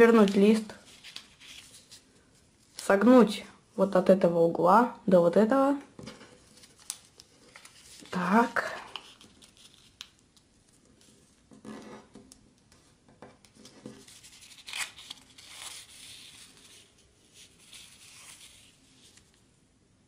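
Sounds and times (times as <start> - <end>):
paper rustling and crinkling: 0.0 - 2.9, 6.0 - 12.3, 13.5 - 19.4.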